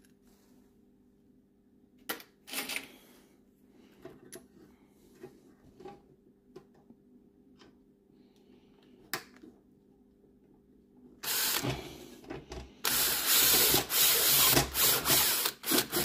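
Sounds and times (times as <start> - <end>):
power drill driving a screw: 11.2 - 11.8, 12.8 - 16.0.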